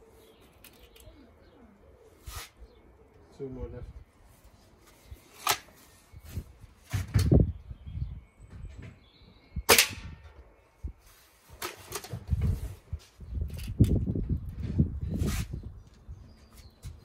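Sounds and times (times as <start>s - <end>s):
air rifle shot: 9.7s - 10.2s.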